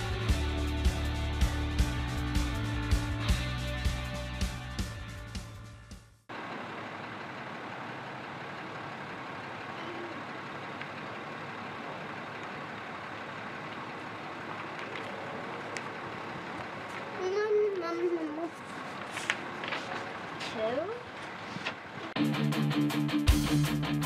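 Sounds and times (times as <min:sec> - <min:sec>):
steady outdoor background noise: 0:06.3 - 0:22.2.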